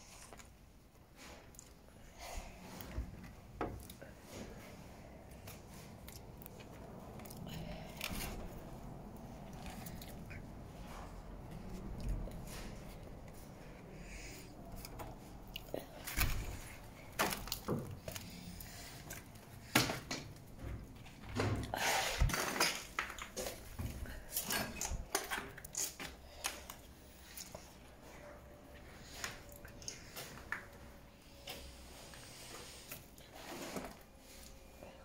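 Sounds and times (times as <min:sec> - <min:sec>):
clicks and knocks of movement: 0:14.7 - 0:27.6.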